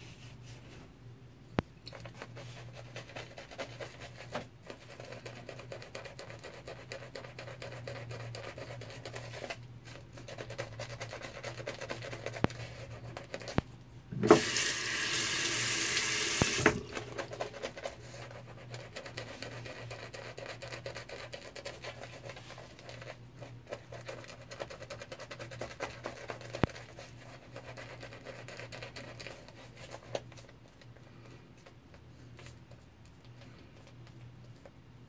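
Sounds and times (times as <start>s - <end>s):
tap running: 13.5s - 17.4s.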